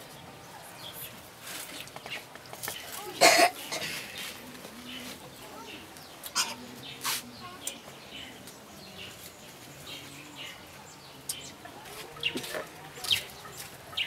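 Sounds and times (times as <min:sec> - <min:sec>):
chickens clucking: 0:01.1 - 0:08.7, 0:10.6 - 0:14.0.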